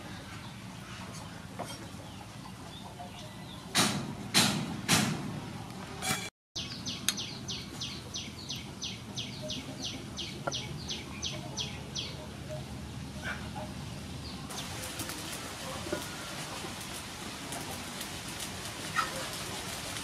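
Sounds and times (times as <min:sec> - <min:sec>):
bird chirping: 0:06.6 - 0:12.6.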